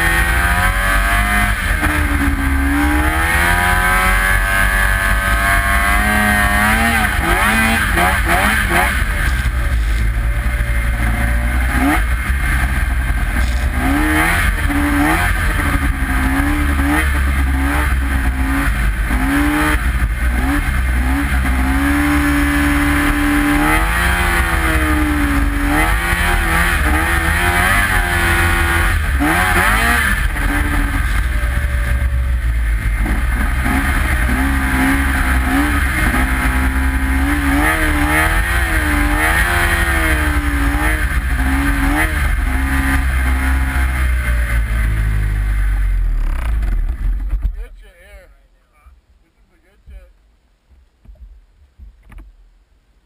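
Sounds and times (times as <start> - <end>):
snowmobile engine revving: 0.0 - 47.0.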